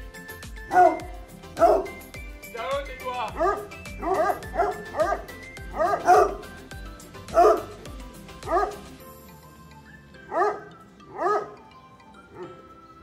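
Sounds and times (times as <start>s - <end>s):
background music: 0.0s - 13.0s
hounds barking: 0.6s - 2.2s, 3.2s - 9.0s, 10.2s - 12.7s.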